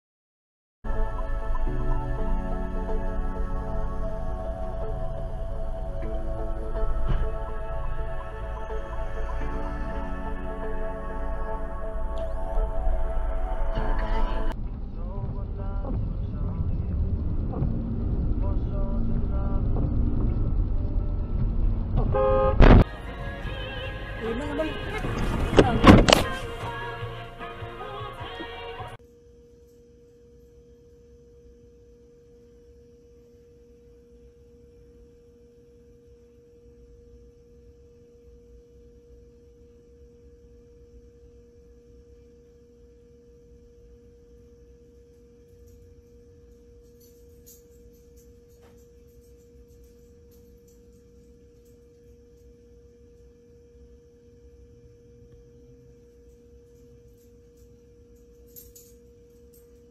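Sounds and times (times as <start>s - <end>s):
low background rumble: 0.9s - 28.2s
faint steady electronic tone: 29.0s - 59.9s.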